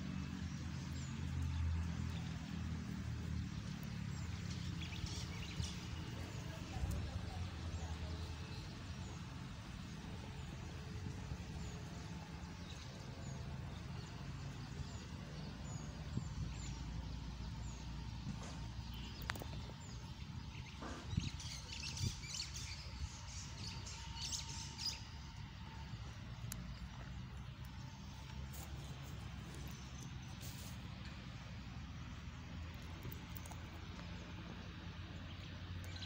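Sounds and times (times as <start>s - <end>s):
small birds chirping: 0.0s - 36.0s.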